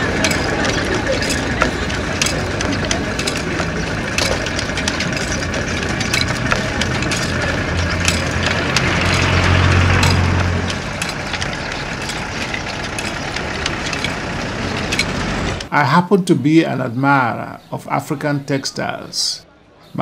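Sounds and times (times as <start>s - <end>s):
steady engine hum: 0.0s - 15.7s
weaving loom wooden clacks: 0.0s - 15.7s.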